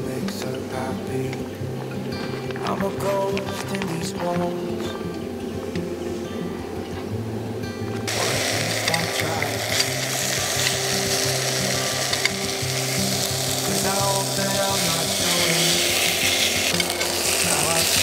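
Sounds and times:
food sizzling in a pan: 0:08.1 - 0:18.0.

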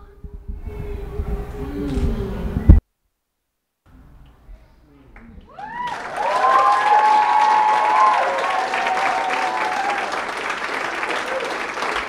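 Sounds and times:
audience applauding: 0:05.2 - 0:12.0
people whooping: 0:05.4 - 0:12.0.

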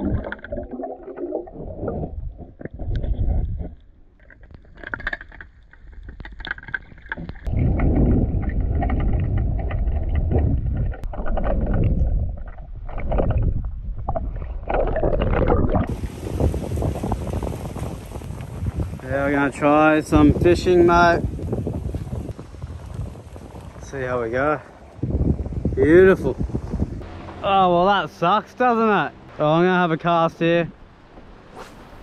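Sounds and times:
muffled underwater water sloshing: 0:00.0 - 0:19.0.

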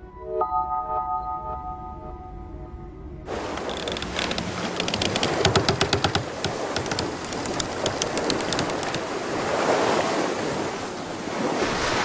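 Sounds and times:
wind: 0:00.0 - 0:12.0
sea waves surging: 0:03.3 - 0:12.0
sharp clicks: 0:03.5 - 0:09.1.

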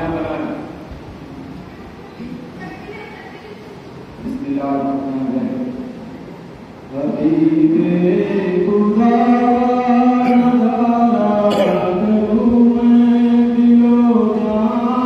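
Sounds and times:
man chanting into a microphone: 0:06.9 - 0:15.0.

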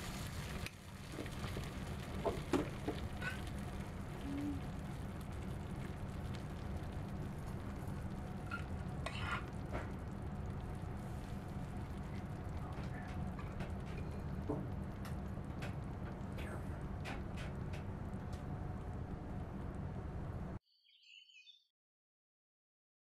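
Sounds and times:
sauce sizzling in a hot pan: 0:00.0 - 0:12.4.

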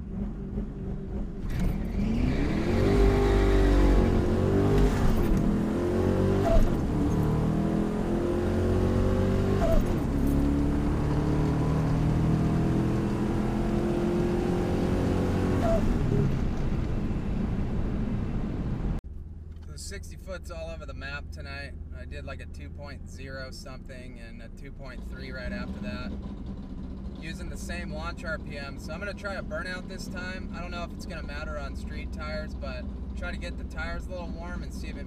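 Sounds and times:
truck engine accelerating hard: 0:00.0 - 0:19.0.

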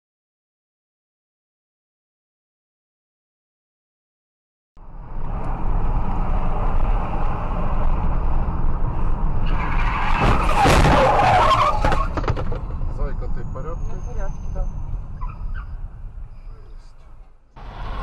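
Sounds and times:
car road and cabin noise: 0:04.8 - 0:18.0
tyres squealing and skidding: 0:08.0 - 0:18.0.

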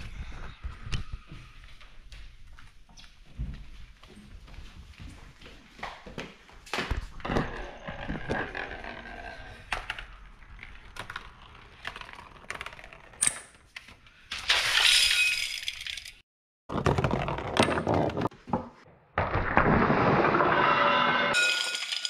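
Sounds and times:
objects knocking and toppling: 0:14.5 - 0:19.9.

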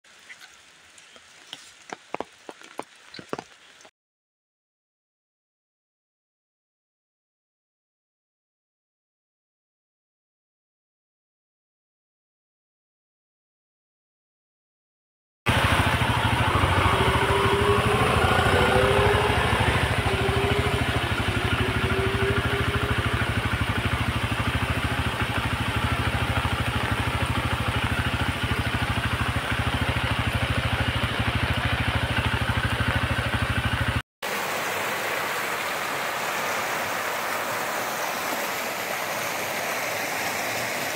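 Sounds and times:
floodwater rushing: 0:15.5 - 0:40.9.

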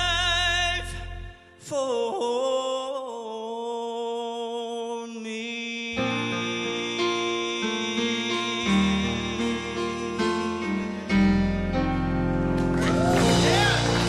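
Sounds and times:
man singing gospel: 0:00.0 - 0:11.4
piano chords: 0:06.0 - 0:14.0.

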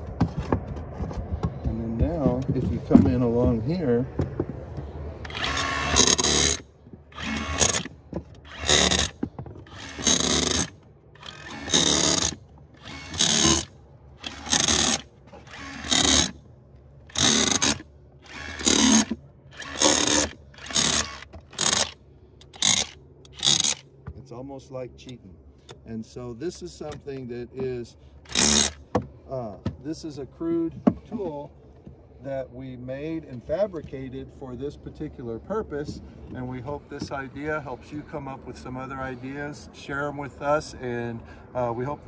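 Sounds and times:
rotary hammer bursts: 0:05.2 - 0:16.4, 0:17.1 - 0:23.8, 0:28.3 - 0:29.0.

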